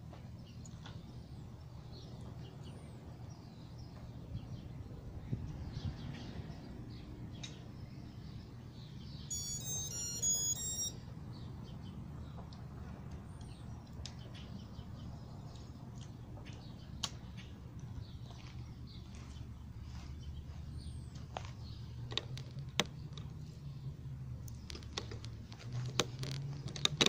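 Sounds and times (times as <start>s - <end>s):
outdoor background noise: 0.0s - 27.0s
electronic beep jingle: 9.3s - 11.1s.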